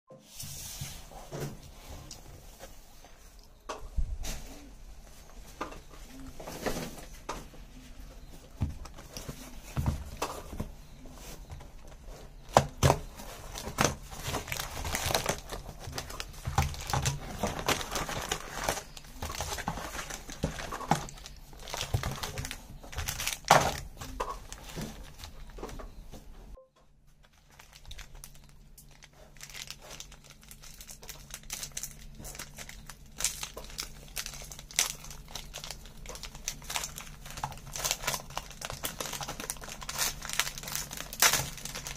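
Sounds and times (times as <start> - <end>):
foil wrappers crinkling: 7.8 - 26.0, 27.2 - 41.9
foil packet tearing: 13.5 - 25.4, 27.3 - 41.9.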